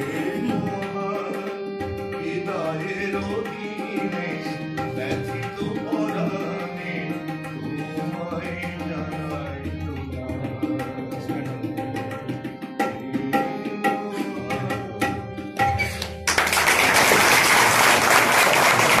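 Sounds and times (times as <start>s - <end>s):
tabla drumming: 0.0s - 19.0s
loud applause: 16.3s - 19.0s.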